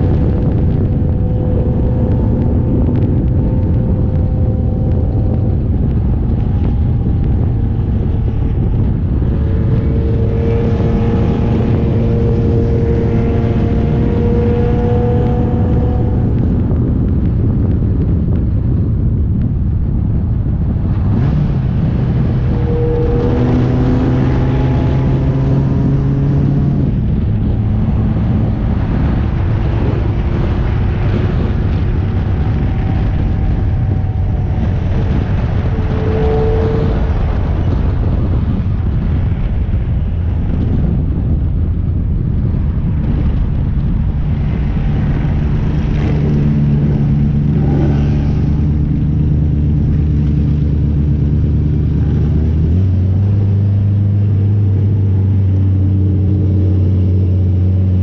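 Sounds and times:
race car engine running: 0.0 - 58.0
wind and road noise: 0.0 - 58.0.

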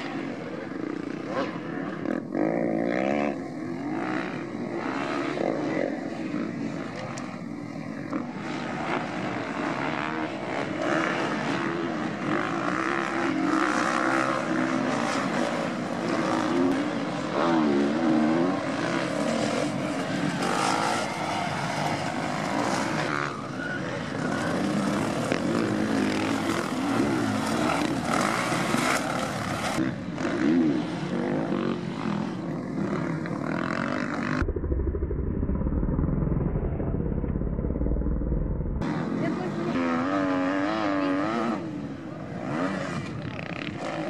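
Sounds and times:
motocross bike engines revving: 0.0 - 36.4, 38.6 - 44.0
heavy low rumble: 34.3 - 39.0.

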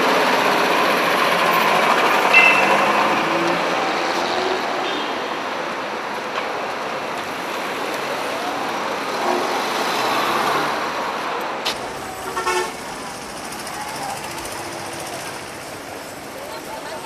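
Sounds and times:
street traffic passing: 0.0 - 17.0
car horn toot: 2.3 - 3.0, 11.8 - 13.0.

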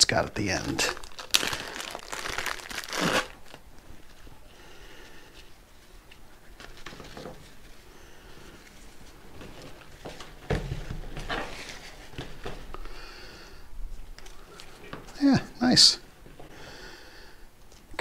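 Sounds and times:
nylon strap rustling: 0.6 - 4.4.

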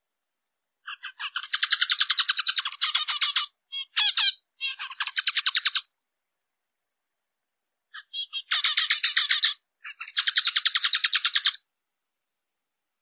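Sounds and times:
finch singing: 0.8 - 5.9, 7.9 - 11.7.

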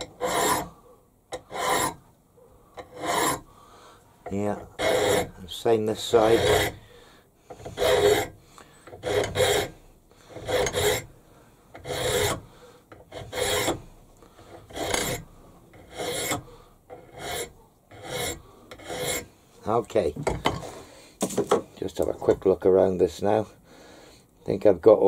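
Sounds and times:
hand file rasping on metal: 0.0 - 2.0, 2.8 - 3.5, 4.3 - 6.9, 7.5 - 11.1, 11.7 - 13.8, 14.4 - 19.3.

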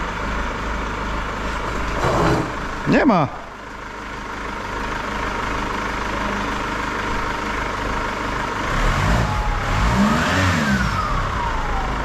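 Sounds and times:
diesel engine idling and revving: 0.0 - 12.0
turbocharger whine: 1.5 - 12.0.

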